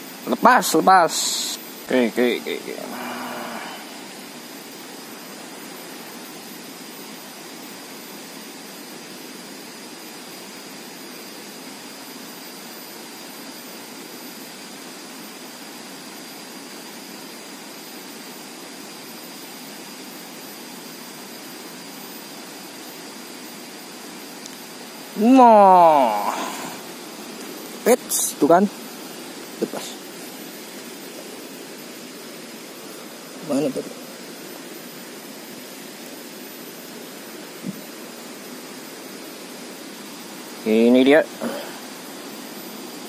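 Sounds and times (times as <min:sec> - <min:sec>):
thin steady high tone: 0:00.0 - 0:43.0
river water rushing: 0:25.0 - 0:40.4.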